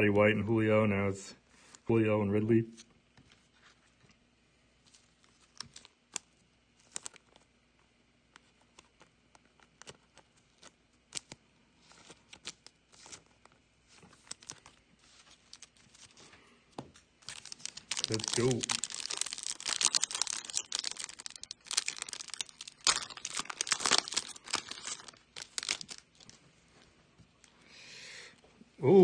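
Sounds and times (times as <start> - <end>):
trading cards clicking and rustling: 8.4 - 26.4.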